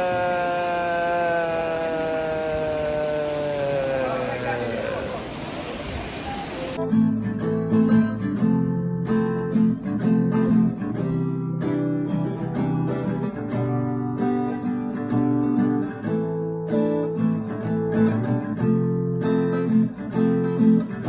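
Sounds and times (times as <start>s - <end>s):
strummed acoustic guitar: 6.8s - 21.0s.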